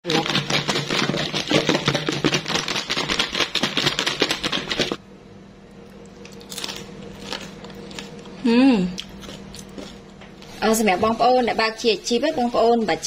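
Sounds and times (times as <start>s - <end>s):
food rattling in plastic tub: 0.1s - 5.0s.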